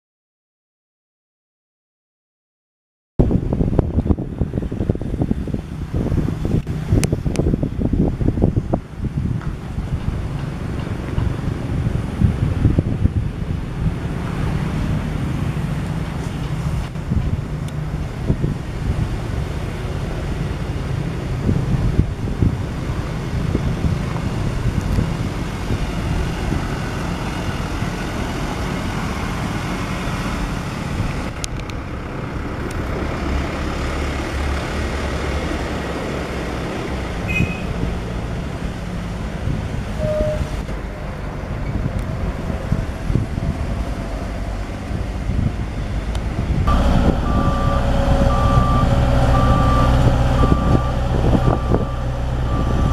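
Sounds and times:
diesel engine running: 0:04.2 - 0:52.9
reversing alarm beeping: 0:46.7 - 0:52.9.

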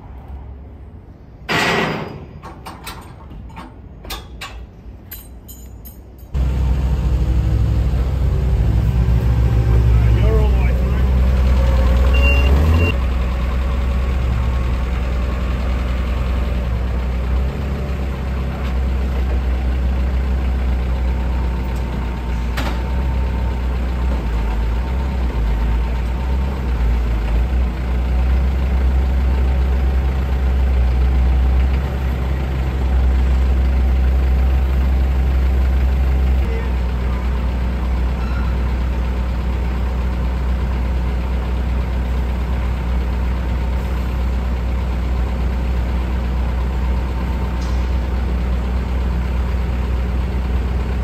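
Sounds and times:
forklift engines idling: 0:00.6 - 0:51.0
short high beep: 0:12.1 - 0:12.9.

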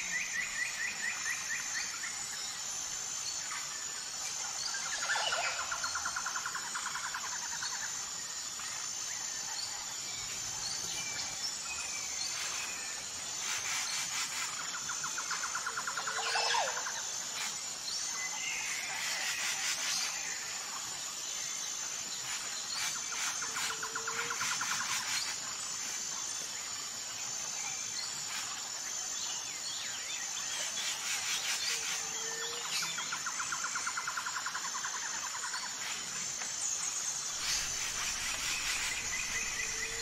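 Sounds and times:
faint high pulsing chirr: 0:31.8 - 0:40.0
bird calls and chirps: 0:37.2 - 0:40.0.

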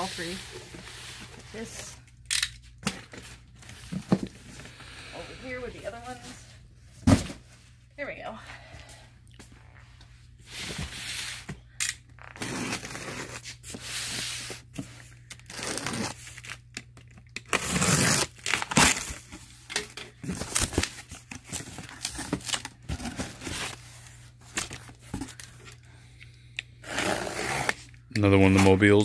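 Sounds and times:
packing tape tearing: 0:11.8 - 0:13.5, 0:15.3 - 0:19.3, 0:20.2 - 0:23.8, 0:26.8 - 0:28.8
box cutter slitting tape: 0:12.3 - 0:13.4, 0:15.4 - 0:16.6, 0:17.4 - 0:19.2, 0:26.8 - 0:27.8.

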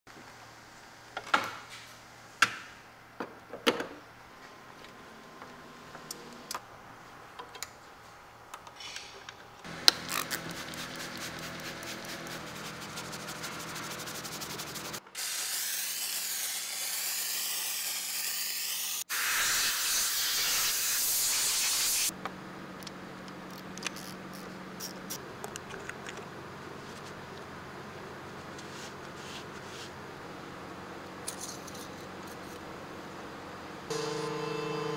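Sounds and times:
steam cleaner hissing: 0:10.1 - 0:22.1.

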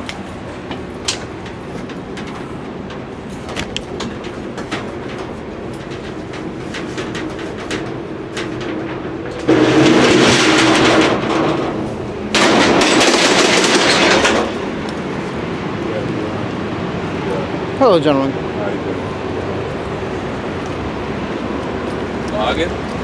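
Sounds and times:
light clicks and clanks: 0:00.0 - 0:09.5
metal shutter door rattling: 0:00.8 - 0:14.9.

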